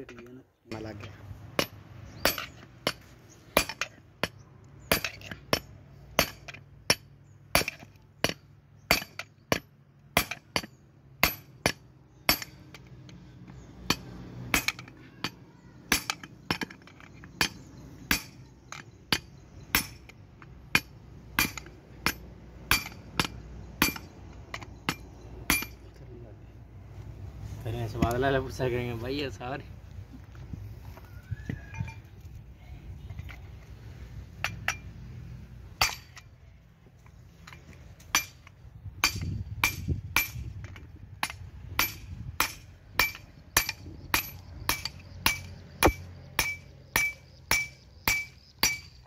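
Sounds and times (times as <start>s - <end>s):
hammer striking steel drift: 19.1s - 24.1s, 24.9s - 25.8s, 41.2s - 49.0s.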